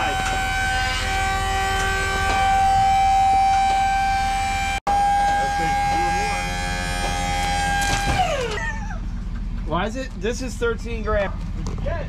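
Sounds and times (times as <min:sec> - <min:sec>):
hydraulic pump whine: 0:00.0 - 0:09.6
low engine rumble: 0:00.0 - 0:12.0.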